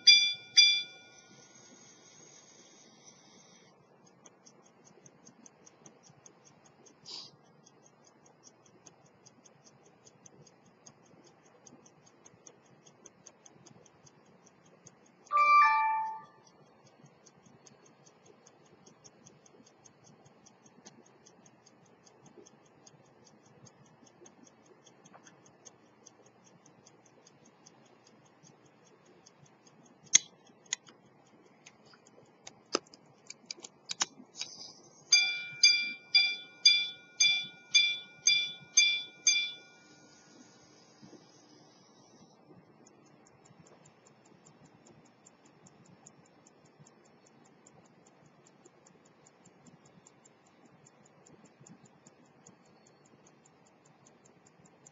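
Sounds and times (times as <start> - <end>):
hammers striking a gong: 0.0 - 1.0, 35.2 - 39.7
pocket watch ticking fast: 0.0 - 15.3, 16.0 - 54.9
sharp clicks of watch mechanism: 0.0 - 15.3, 16.0 - 54.9
two-tone gong ring: 0.1 - 1.1, 15.3 - 16.3.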